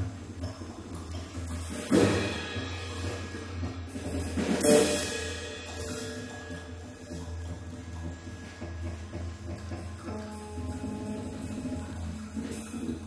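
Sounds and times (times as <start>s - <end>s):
low electronic drone: 0.0s - 13.0s.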